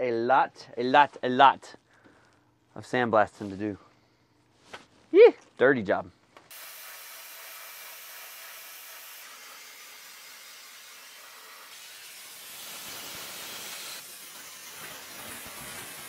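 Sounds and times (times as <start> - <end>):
sandblaster hissing: 6.5 - 16.0.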